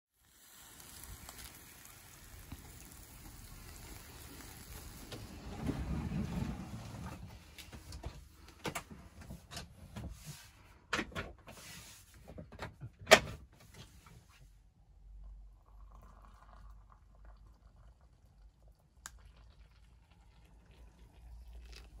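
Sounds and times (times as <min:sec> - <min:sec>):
bed sliding rumble: 0:04.5 - 0:08.3.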